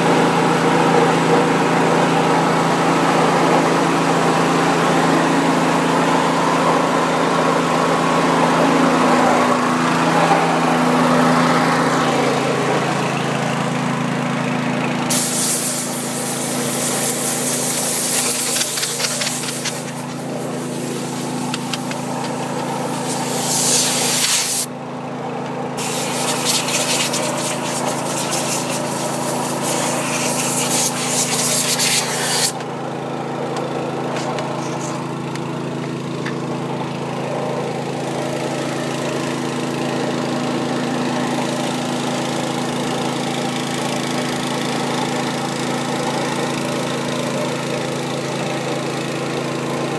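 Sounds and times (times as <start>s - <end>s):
small engine running: 0.0s - 49.9s
water spray hissing: 15.1s - 24.7s, 25.8s - 32.6s.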